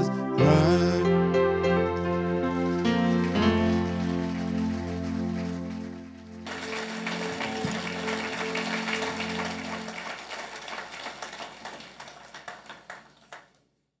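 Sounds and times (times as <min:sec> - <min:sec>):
held musical chord: 0:00.0 - 0:10.5
audience applauding: 0:02.4 - 0:13.6.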